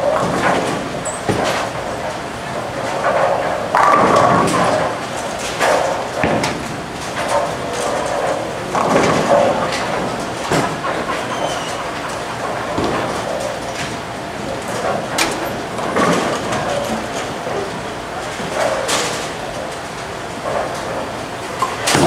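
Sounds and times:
bowling ball rolling: 0:00.0 - 0:19.7
bowling pins crashing: 0:21.6 - 0:22.0.

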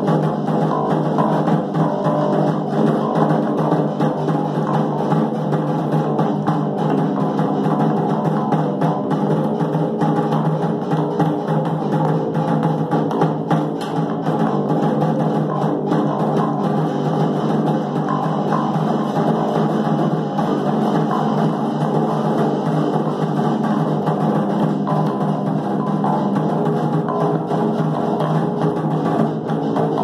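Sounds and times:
snare drum struck with sticks: 0:12.5 - 0:14.8
electric bass: 0:13.1 - 0:30.0.

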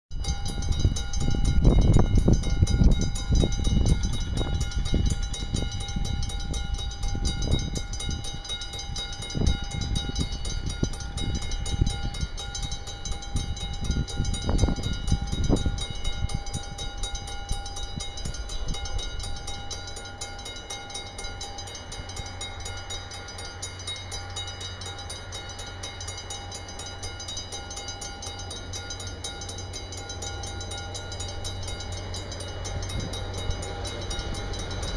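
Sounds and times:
locomotive humming: 0:00.1 - 0:34.9
wind buffeting microphone: 0:00.2 - 0:20.7, 0:30.6 - 0:34.9.

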